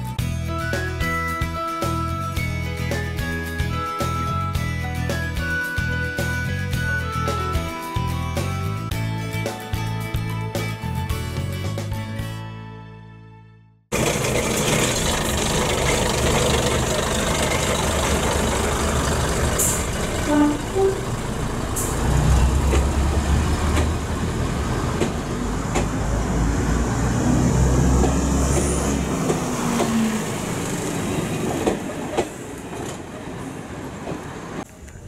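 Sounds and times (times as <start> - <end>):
large engine rumbling: 13.9 - 33.8.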